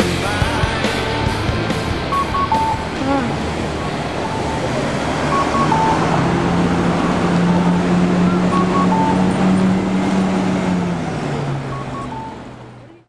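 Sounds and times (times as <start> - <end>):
road traffic noise: 0.0 - 13.0
vehicle engine humming: 0.0 - 13.0
faint short electronic beeps: 4.2 - 4.7, 8.3 - 9.4, 11.7 - 12.4.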